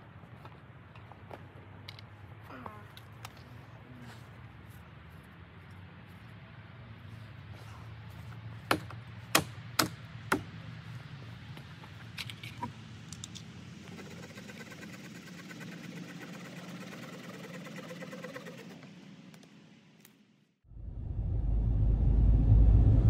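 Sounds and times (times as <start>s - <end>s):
low steady hum: 20.7s - 23.0s.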